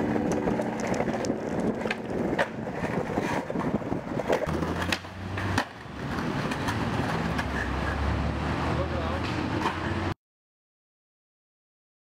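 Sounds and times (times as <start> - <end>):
skateboard clacks: 0.0 - 8.0
skateboard wheels rolling on tiles: 0.0 - 8.3.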